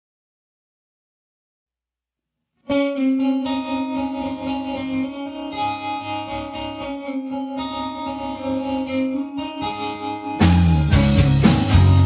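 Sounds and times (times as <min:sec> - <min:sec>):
electric guitar ringing chords: 0:02.7 - 0:12.0.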